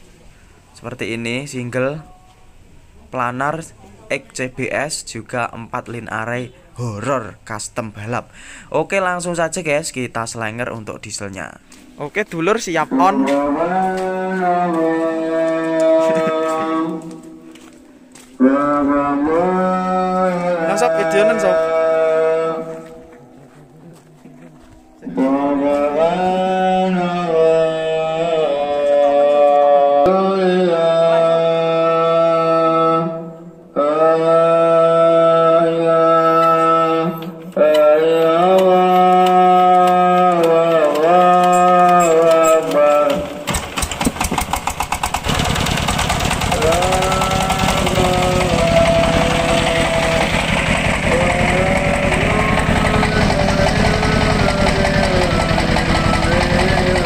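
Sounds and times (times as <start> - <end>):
person chanting long held notes: 12.7 - 43.5, 45.3 - 57.0
diesel engine chugging: 38.2 - 57.0
tune of held notes: 46.8 - 57.0.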